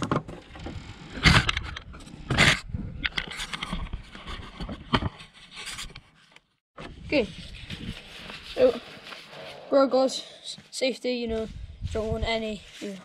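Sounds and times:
camera handling scraping and knocks: 0.6s - 6.4s.

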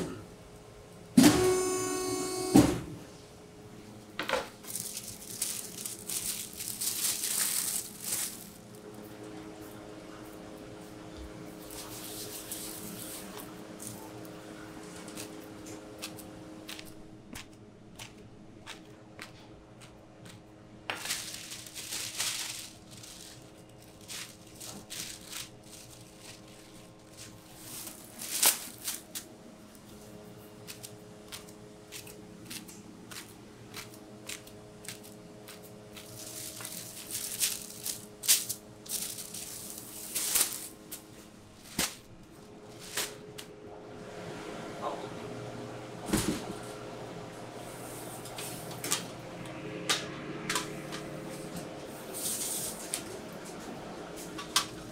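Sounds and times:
steady low hum: 0.0s - 54.9s
plastic sheets rustling: 4.3s - 8.8s, 20.8s - 42.1s.

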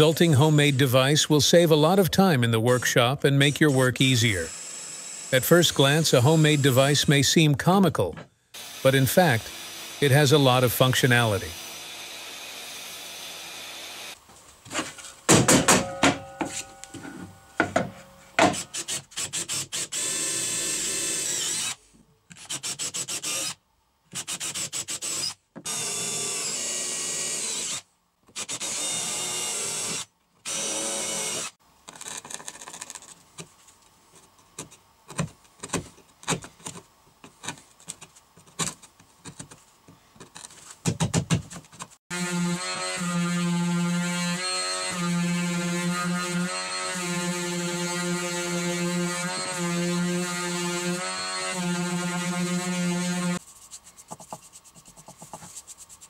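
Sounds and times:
cordless drill boring into wood: 4.5s - 6.7s, 8.6s - 10.1s, 19.7s - 21.8s, 22.6s - 23.6s, 24.2s - 27.8s, 28.4s - 31.6s.

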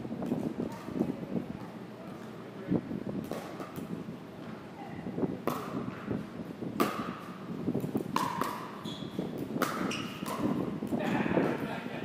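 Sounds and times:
paddles hitting plastic ball: 3.2s - 3.9s, 5.4s - 6.1s, 6.8s - 11.6s.

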